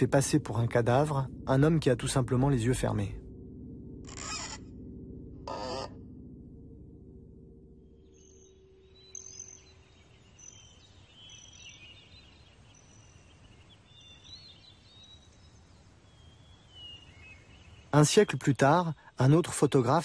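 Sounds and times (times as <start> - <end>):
low steady rumble: 0.0 - 8.9
birds chirping and twittering: 7.9 - 20.0.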